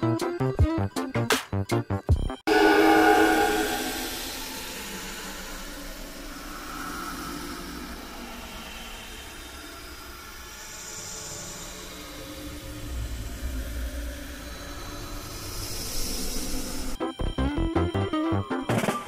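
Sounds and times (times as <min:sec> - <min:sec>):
steady hissing noise: 0:03.0 - 0:17.0.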